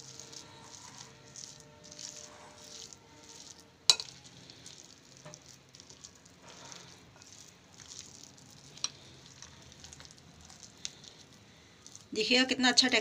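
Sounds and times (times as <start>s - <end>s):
spoon stirring moist mixture: 0.0s - 13.0s
spoon clinking against glass bowl: 3.3s - 4.2s.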